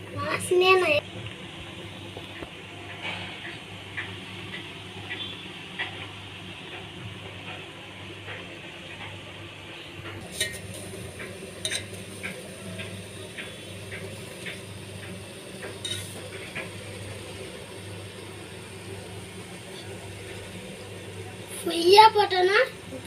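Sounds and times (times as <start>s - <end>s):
steady low hum: 0.0s - 23.0s
utensil clinking against metal pot: 10.2s - 16.8s.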